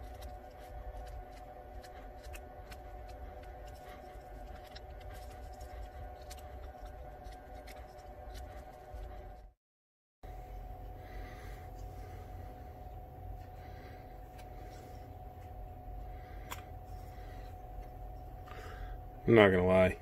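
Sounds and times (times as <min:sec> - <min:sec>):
steady low hum: 0:00.0 - 0:09.6, 0:10.2 - 0:20.0.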